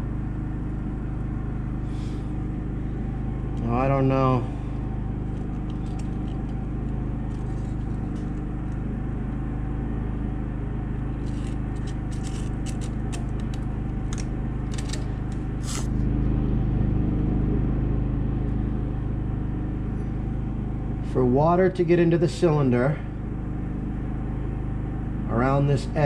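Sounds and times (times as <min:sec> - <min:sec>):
low mechanical hum: 0:00.0 - 0:26.0
light clicks and scrapes: 0:05.3 - 0:06.6, 0:11.2 - 0:13.6.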